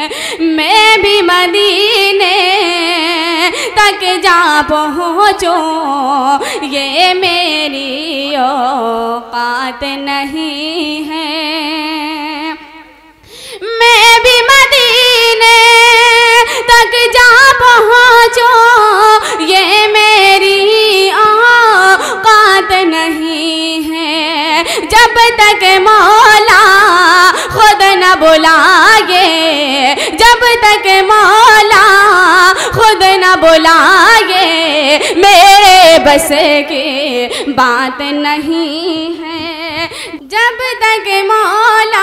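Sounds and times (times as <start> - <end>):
woman singing: 0.0 - 42.0.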